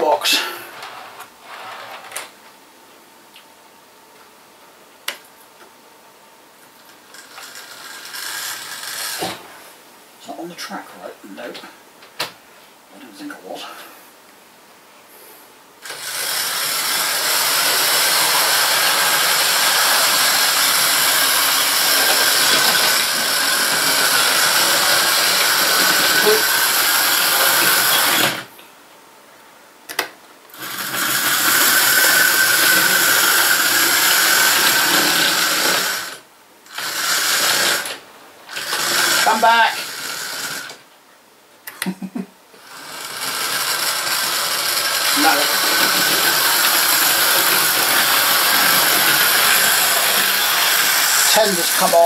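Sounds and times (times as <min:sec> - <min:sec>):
model train motor whirring: 0:07.0 - 0:09.4, 0:15.8 - 0:28.5, 0:30.5 - 0:40.8, 0:42.6 - 0:52.0.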